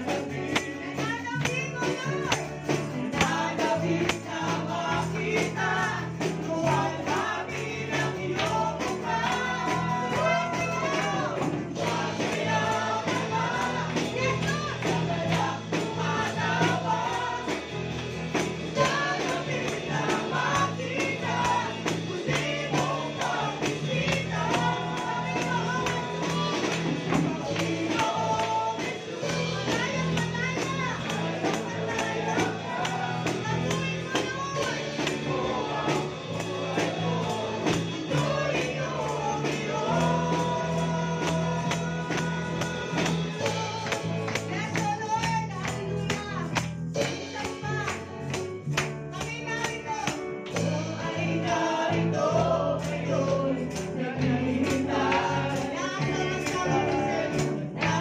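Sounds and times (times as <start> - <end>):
drum kit with cymbals: 0.0 - 58.0
woman singing into microphone: 3.2 - 17.7, 18.8 - 36.1, 37.6 - 48.0, 49.2 - 58.0.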